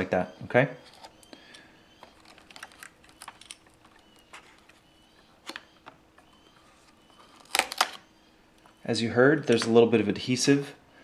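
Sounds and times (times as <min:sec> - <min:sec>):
cable peeling with faint clicks: 0:00.8 - 0:08.0.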